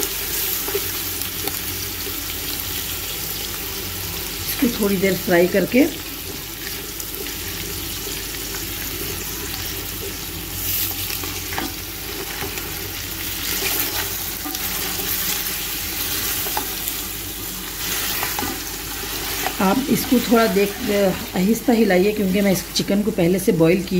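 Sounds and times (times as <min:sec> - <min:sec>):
chicken sizzling in oil: 0:00.0 - 0:23.9
spatula scraping pot: 0:17.6 - 0:21.4.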